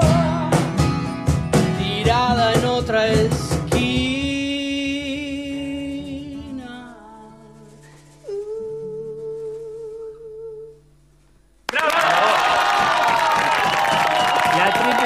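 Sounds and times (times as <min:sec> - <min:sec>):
strummed acoustic guitar: 0:00.0 - 0:11.6
cajon hits: 0:12.6 - 0:15.0.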